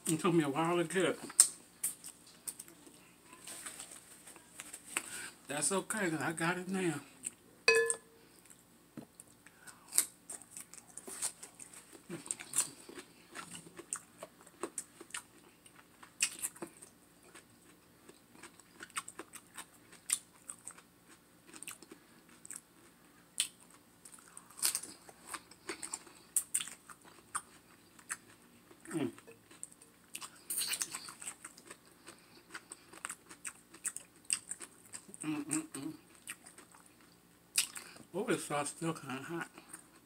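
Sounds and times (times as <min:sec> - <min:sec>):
short ringing clink: 0:07.7 - 0:08.2
chewing and crunching food: 0:08.3 - 0:38.1, 0:39.0 - 0:40.0.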